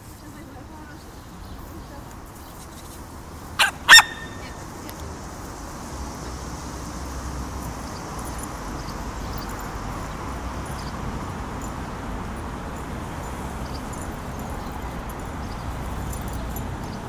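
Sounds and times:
traffic noise: 0.0 - 17.0
small dog barking: 3.6 - 4.6.

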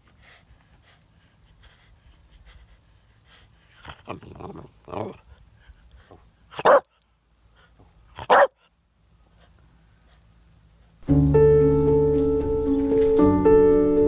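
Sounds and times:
dog grumbling: 3.8 - 5.2
dog barking: 6.6 - 6.9, 8.2 - 8.6.

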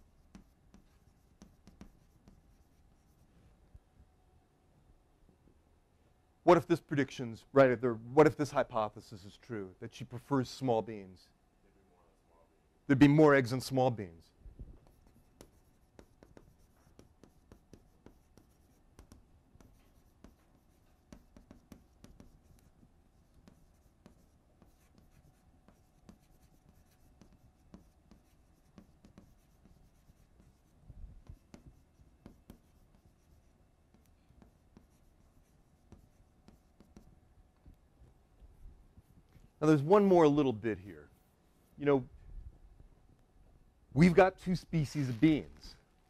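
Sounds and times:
chalk tapping and scraping: 0.0 - 3.3, 14.8 - 37.1.

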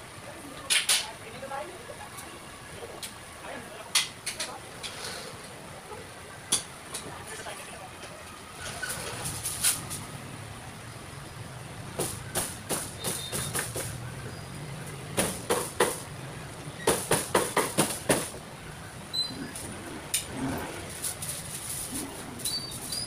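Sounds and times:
cleaver chopping on a board: 12.0 - 14.0, 16.9 - 18.3.

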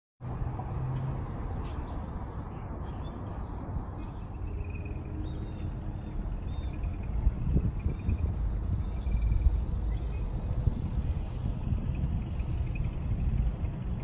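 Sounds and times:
faint bird chirps and calls: 2.8 - 10.3
low outdoor rumble: 3.9 - 14.0.

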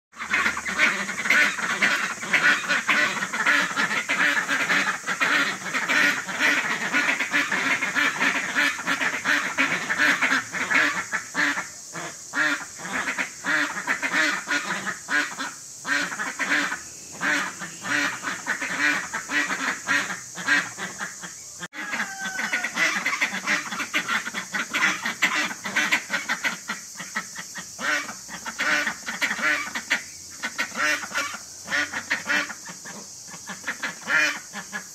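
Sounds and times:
ducks quacking: 0.2 - 34.9.

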